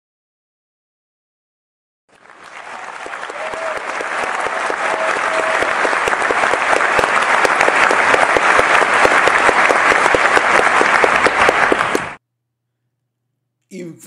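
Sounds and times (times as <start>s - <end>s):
audience applause: 2.1s - 12.2s.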